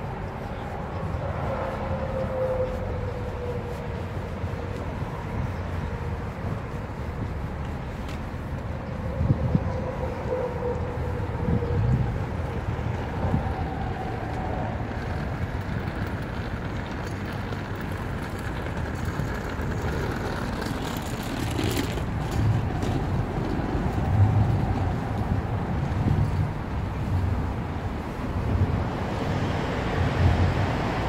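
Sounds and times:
low outdoor rumble: 0.0s - 31.0s.

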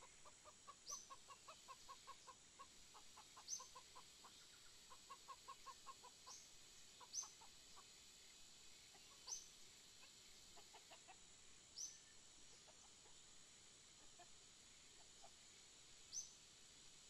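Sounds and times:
hens clucking: 0.0s - 6.4s, 10.0s - 11.2s.

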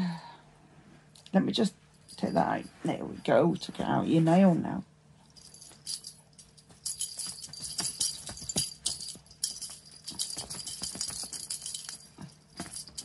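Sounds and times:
cat toy rattling: 5.4s - 13.0s.

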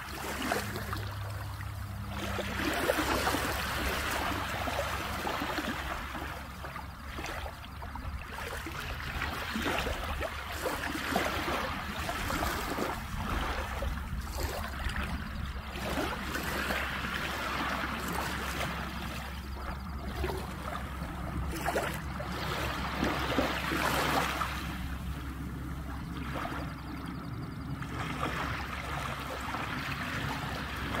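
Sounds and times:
small waves lapping on rocks: 0.0s - 26.8s, 27.8s - 31.0s.

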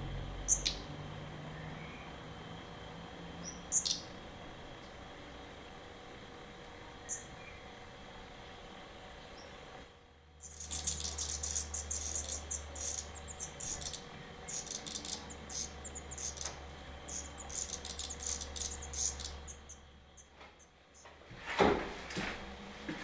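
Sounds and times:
nestlings begging calls: 0.4s - 0.9s, 3.4s - 4.2s, 7.0s - 7.7s, 10.4s - 20.7s.

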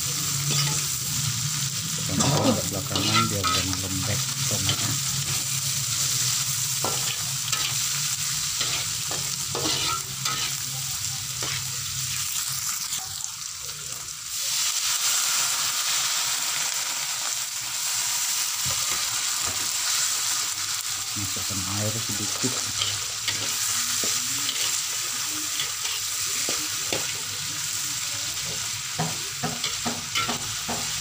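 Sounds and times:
food sizzling in a wok: 0.0s - 31.0s
spatula scraping a pan: 2.2s - 3.6s, 8.6s - 10.6s.

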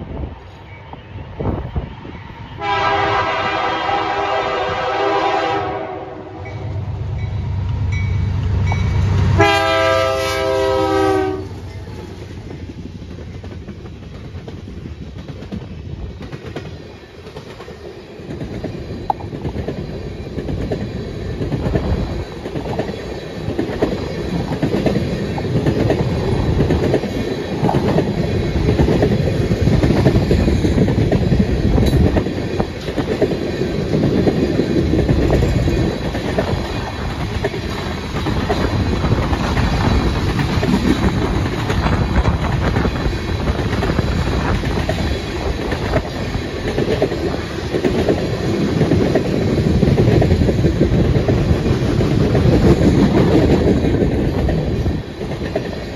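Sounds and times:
locomotive air horn: 2.6s - 6.6s, 9.4s - 11.6s
train wheels clacking on rails: 7.1s - 55.9s.

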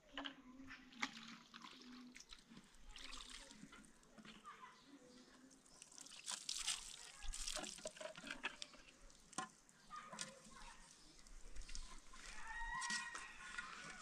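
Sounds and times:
water splashing onto plastic plate: 0.9s - 4.1s, 5.6s - 10.3s.

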